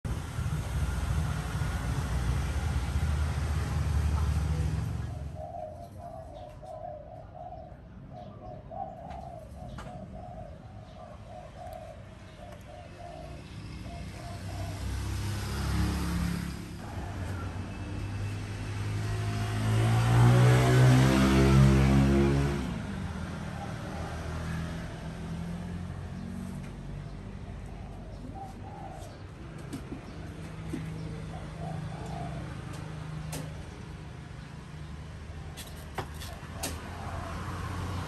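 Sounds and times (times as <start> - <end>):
passing vehicle rumble: 0.0 - 6.4, 9.2 - 38.0
approaching vehicle engine: 0.0 - 6.6, 9.0 - 38.0
dove cooing: 4.2 - 15.8, 23.2 - 34.2, 36.2 - 38.0.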